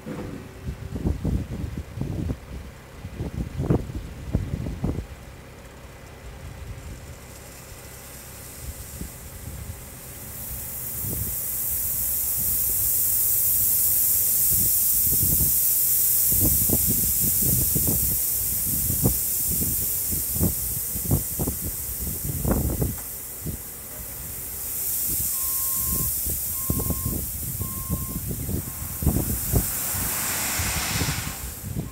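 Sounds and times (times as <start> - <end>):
low rumbles and thumps: 0.0 - 5.1, 26.2 - 31.9
gravel pouring: 7.0 - 22.4, 23.1 - 31.9.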